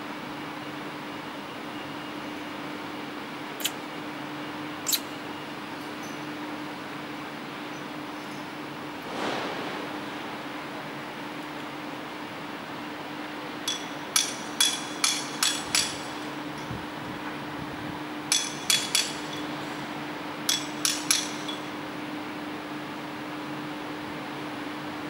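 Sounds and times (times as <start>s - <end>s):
hammer striking metal: 13.7s - 16.3s, 18.3s - 19.6s, 20.5s - 21.7s.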